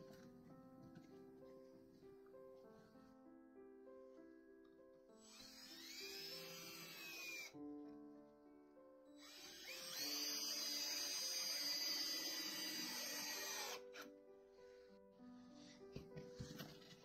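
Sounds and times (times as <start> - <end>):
background music: 0.0 - 17.0
cordless drill drilling into wood: 5.2 - 7.6, 9.2 - 14.1.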